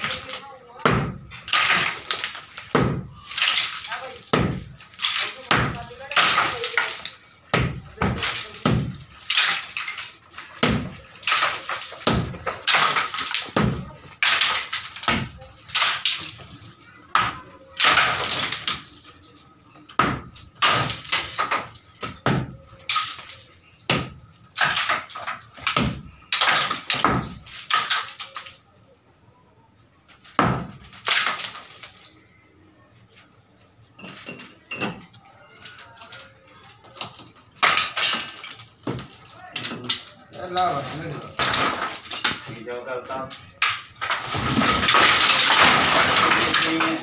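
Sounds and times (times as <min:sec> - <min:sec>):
falling concrete debris: 0:00.0 - 0:28.9, 0:30.0 - 0:32.7, 0:33.8 - 0:47.0
hammer striking concrete: 0:00.8 - 0:02.0, 0:04.1 - 0:04.7, 0:05.4 - 0:09.0, 0:10.6 - 0:15.4.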